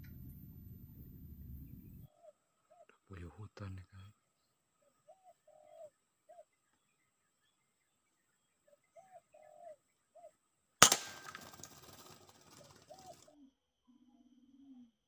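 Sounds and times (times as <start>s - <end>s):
bird calls: 0.9s - 10.5s, 11.4s - 15.0s
air rifle shot: 10.8s - 11.6s.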